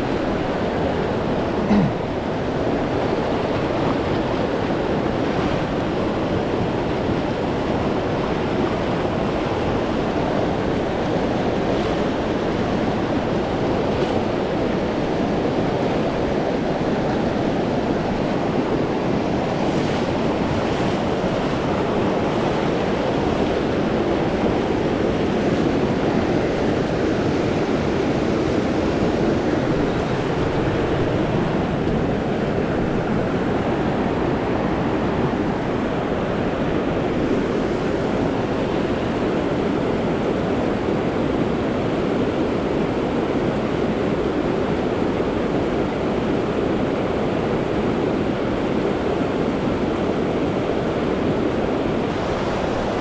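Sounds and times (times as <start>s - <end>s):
stream rushing: 0.0s - 53.0s.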